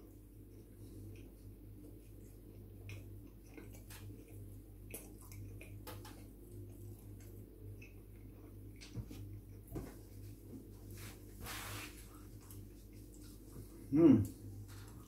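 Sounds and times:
steady low hum: 0.0 - 15.0
chewing with wet mouth clicks: 0.1 - 9.7.

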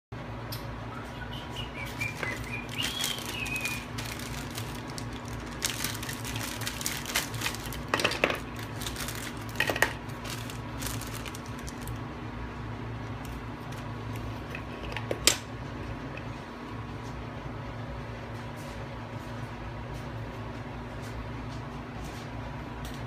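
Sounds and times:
plastic bag rustling: 1.8 - 12.0.

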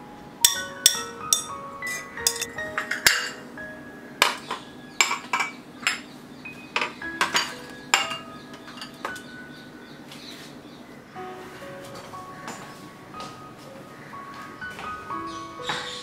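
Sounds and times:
soft background music: 0.0 - 16.0
cups knocking metal strainer: 0.5 - 3.4
teacups clinking on saucers: 0.5 - 3.4.

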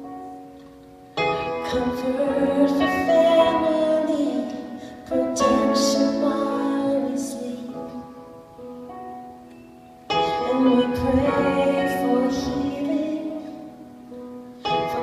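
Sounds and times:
piano chords and melody: 0.0 - 15.0.

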